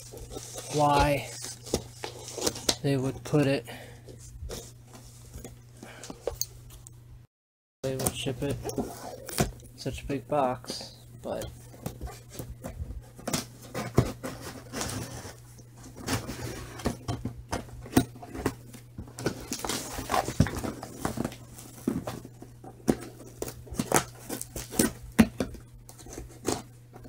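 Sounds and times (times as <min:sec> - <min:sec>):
cardboard rustling: 0:00.0 - 0:06.2, 0:07.9 - 0:27.0
cardboard flaps scraping: 0:11.3 - 0:26.7.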